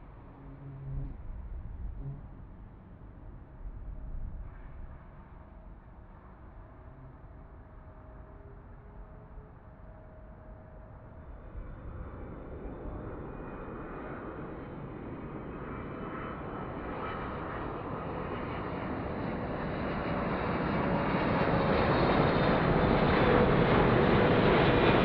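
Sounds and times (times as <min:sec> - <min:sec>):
jet engines roaring and whining: 0:12.1 - 0:25.0.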